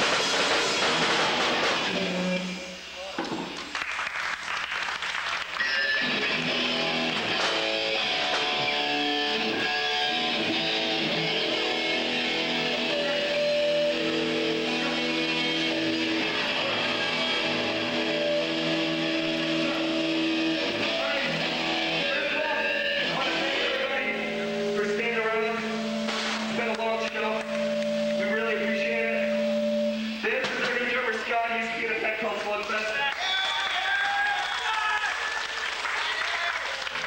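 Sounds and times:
sharp drum hits: 0.0s - 2.1s, 26.0s - 26.7s
punk band playing live: 0.0s - 2.6s, 5.5s - 30.9s.

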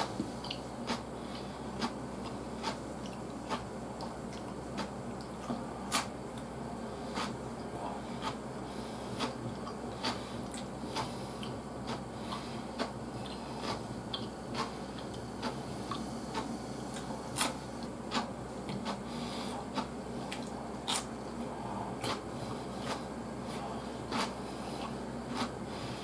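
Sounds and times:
chewing crisp vegetables: 0.1s - 26.0s.

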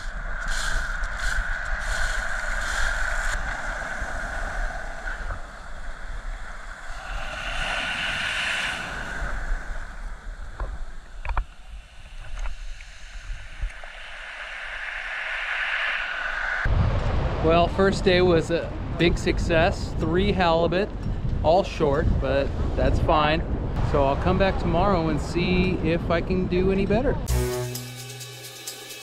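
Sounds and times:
ocean surf washing ashore: 0.0s - 19.0s
wind on microphone: 0.0s - 27.3s.

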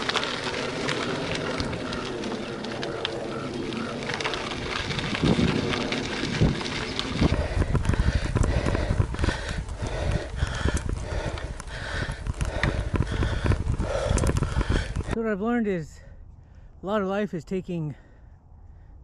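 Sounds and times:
bike rattling on rough ground: 0.0s - 15.2s
wind buffeting microphone: 0.0s - 15.2s
bike tyres on dirt: 0.0s - 15.6s.

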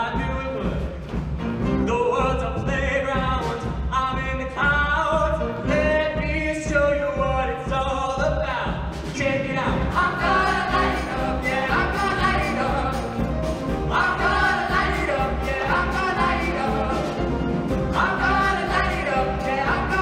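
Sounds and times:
band bass beat: 0.0s - 20.0s
choir singing long notes: 10.0s - 20.0s.

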